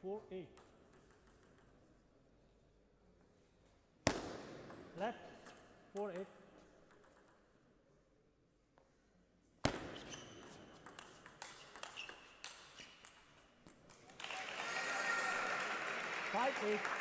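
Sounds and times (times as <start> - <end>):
table tennis ball clicking: 0.6 - 1.8, 5.4 - 7.5, 10.8 - 14.2
applause: 14.1 - 17.0.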